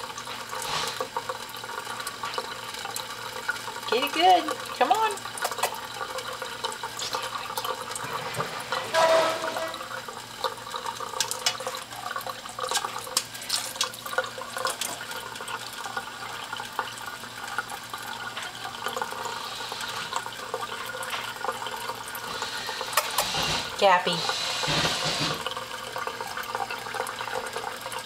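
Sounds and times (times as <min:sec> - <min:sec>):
tap water running into sink: 0:00.0 - 0:28.0.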